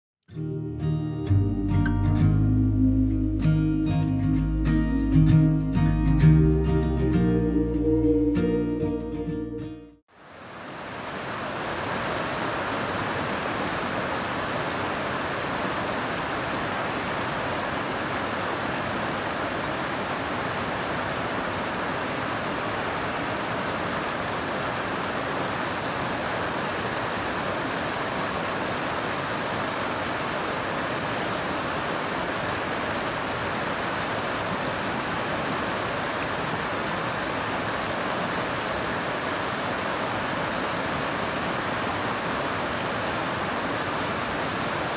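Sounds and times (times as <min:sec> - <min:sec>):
whitewater rushing over boulders: 0:10.2 - 0:44.9.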